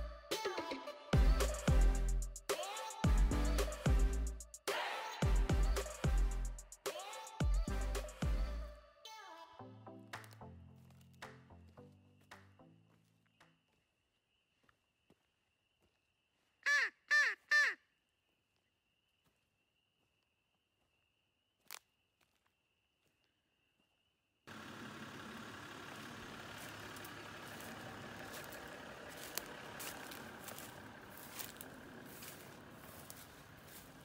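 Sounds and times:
crow cawing: 16.6 - 17.9
footsteps through grass and brush: 21.6 - 23.3, 25.9 - 34.0.

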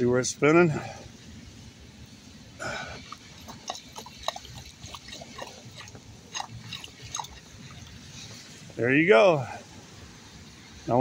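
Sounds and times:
water rush: 0.0 - 11.0
water gurgling down storm drain: 2.5 - 9.9.

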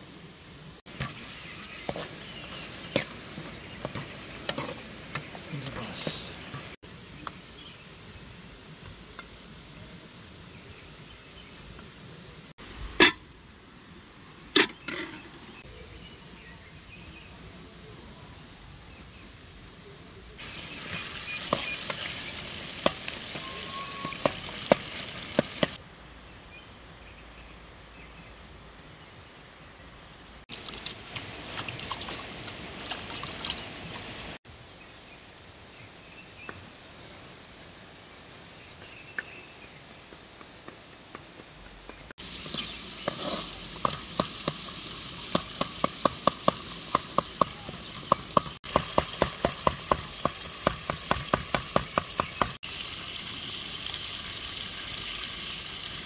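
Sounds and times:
tomatoes sizzling in oil: 0.9 - 6.8, 20.4 - 25.8, 42.2 - 56.0.

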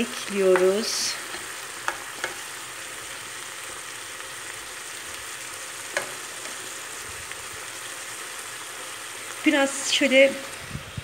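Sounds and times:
vegetables sizzling in a pan: 0.0 - 11.0.

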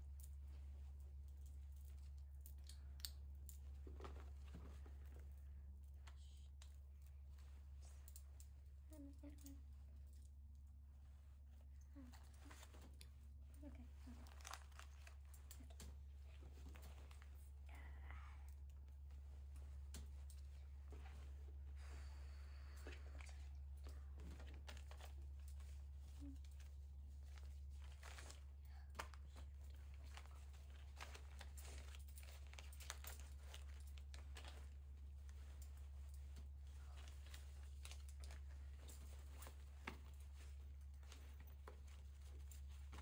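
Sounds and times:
low room hum: 0.0 - 43.0
handbag being rummaged through: 13.6 - 17.4, 22.7 - 43.0.

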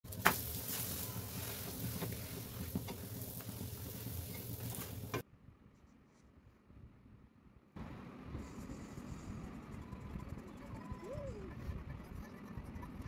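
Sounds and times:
food sizzling in a hot pan: 0.1 - 5.2.

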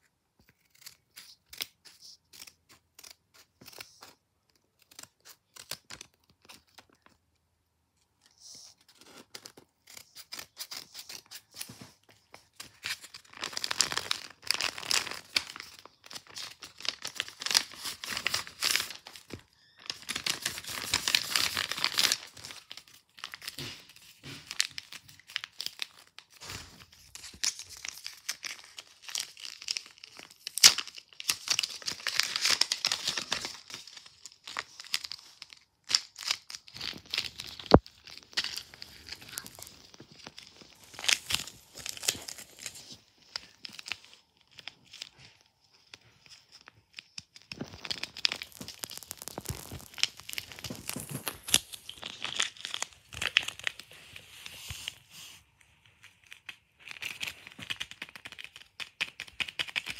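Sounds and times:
paper rustling and tearing: 8.3 - 55.4.

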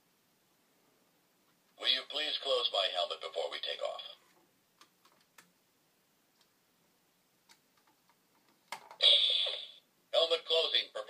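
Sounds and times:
toy sound effect from speaker: 9.0 - 9.8.

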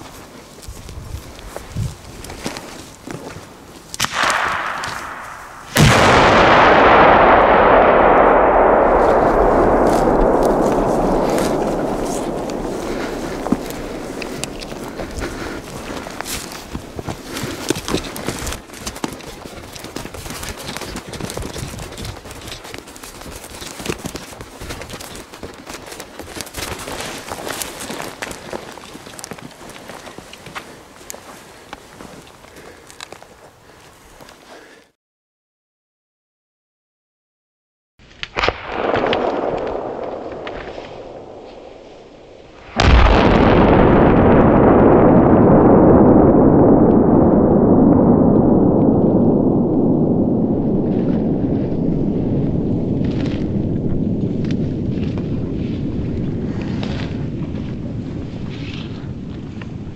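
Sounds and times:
footsteps crunching on dry twigs: 0.0 - 6.4, 8.9 - 34.9
firecracker blast: 4.0 - 18.0, 38.3 - 54.6
low rumble: 4.6 - 18.3, 38.6 - 59.9.

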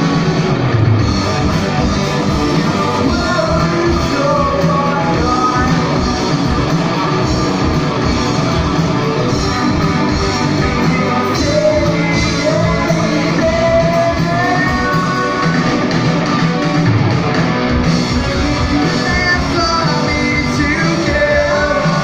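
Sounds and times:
electric guitars: 0.0 - 22.0
steady drum beat: 0.0 - 22.0
person singing: 2.3 - 6.5, 10.6 - 16.0, 18.5 - 22.0.

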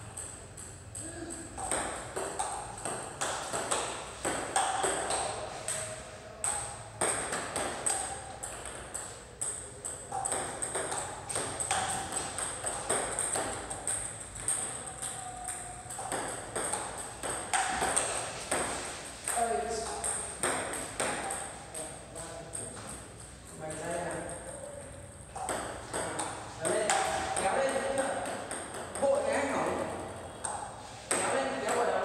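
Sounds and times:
table tennis ball clicks: 0.1 - 18.7.

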